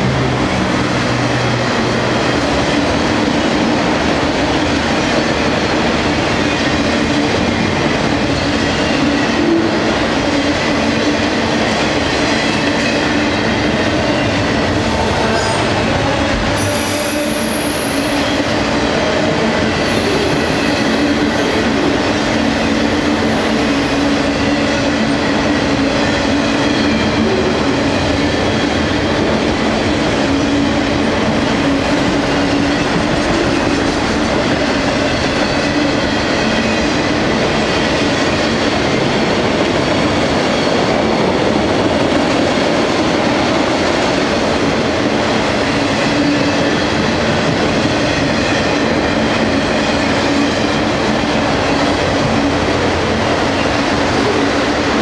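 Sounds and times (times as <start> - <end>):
freight train wheels on rails: 0.0 - 55.0.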